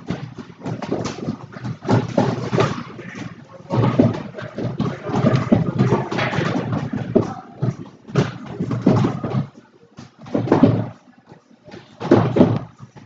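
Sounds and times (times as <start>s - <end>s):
indistinct voices: 2.4s - 11.9s.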